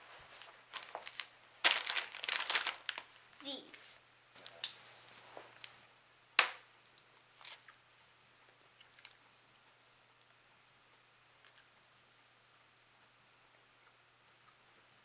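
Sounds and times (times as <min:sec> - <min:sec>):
candy wrapper crinkling: 0:00.7 - 0:03.3.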